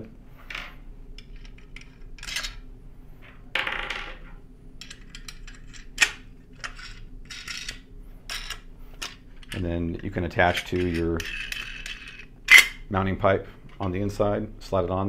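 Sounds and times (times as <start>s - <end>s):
metal bolts clinking and scraping: 1.2s - 2.6s, 4.8s - 12.8s.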